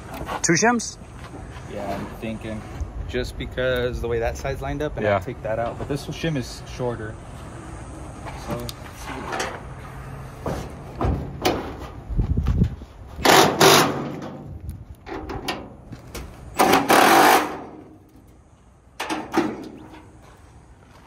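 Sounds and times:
impact wrench hammering a bolt: 13.2s - 14.1s, 16.6s - 17.8s.

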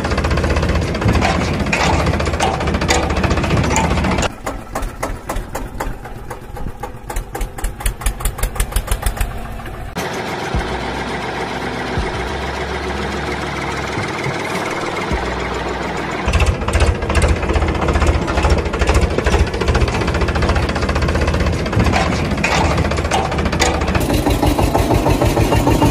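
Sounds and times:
diesel engine chugging: 0.0s - 25.9s.

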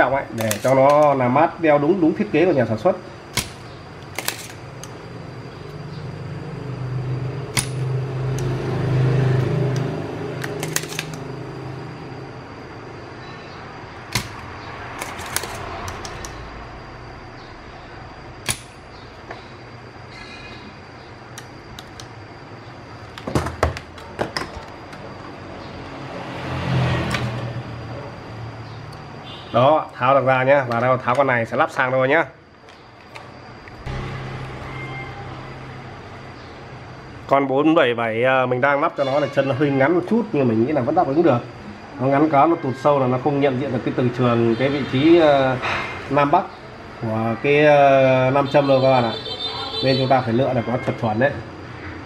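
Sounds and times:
small tools clicking and tapping: 0.4s - 1.2s, 14.1s - 16.4s
low hum: 33.7s - 37.3s.

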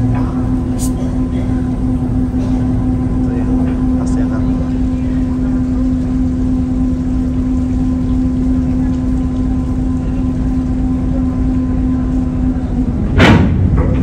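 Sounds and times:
diesel engines rumbling: 0.0s - 14.0s
loud knock: 13.2s - 14.0s.

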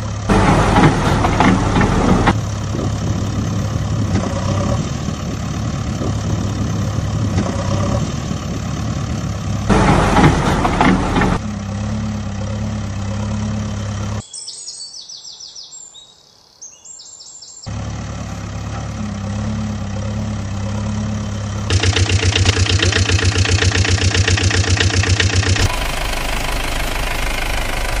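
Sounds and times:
rhythmic chugging engine: 0.0s - 4.2s, 9.7s - 13.2s, 17.7s - 28.0s
heavy diesel engine: 0.0s - 14.2s, 17.7s - 28.0s
birds chirping: 12.3s - 22.6s.

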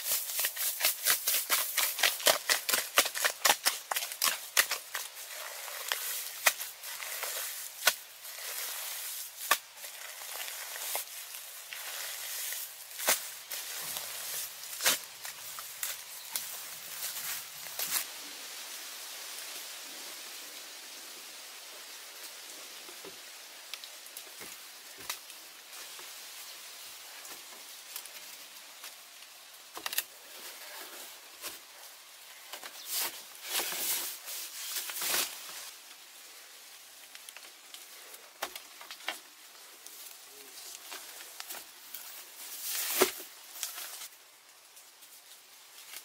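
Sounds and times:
bamboo poles knocking and creaking: 0.0s - 16.5s, 29.6s - 31.7s, 32.3s - 35.6s, 37.0s - 39.3s
high outdoor hiss: 0.0s - 46.0s.

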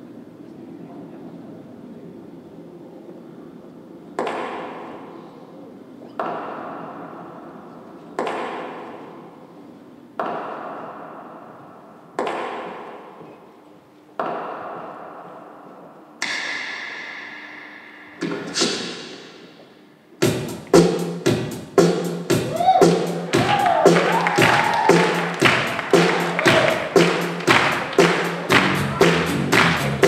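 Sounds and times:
sharp percussive hits: 16.2s - 19.6s, 20.2s - 30.0s.

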